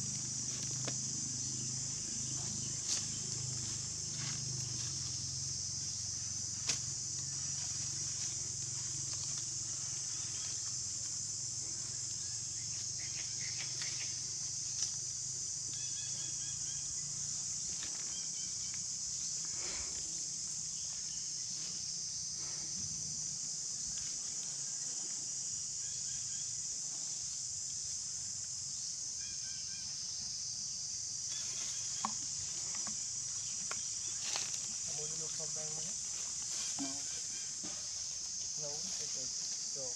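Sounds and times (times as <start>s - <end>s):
insects buzzing: 0.0s - 39.9s.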